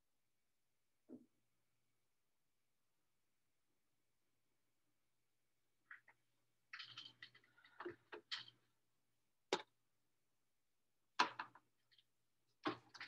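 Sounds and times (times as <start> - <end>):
small clicks and knocks: 5.9 - 8.7, 11.2 - 13.0.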